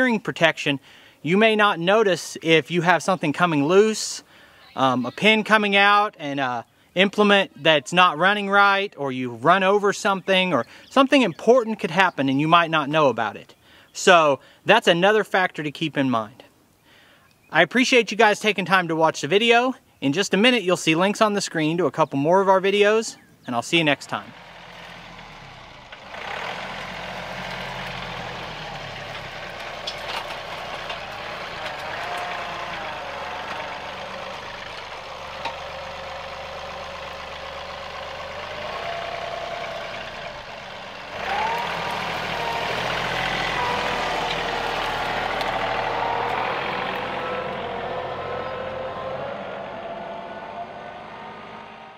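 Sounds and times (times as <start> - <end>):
tractor diesel engine under load: 22.7 - 51.9.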